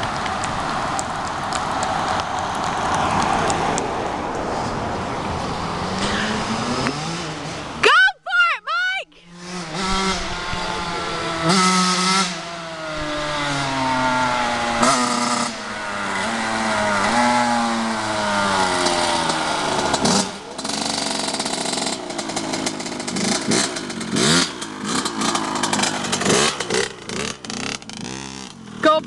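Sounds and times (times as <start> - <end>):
two-stroke dirt bike engine: 5.9 - 7.8, 9.2 - 29.0.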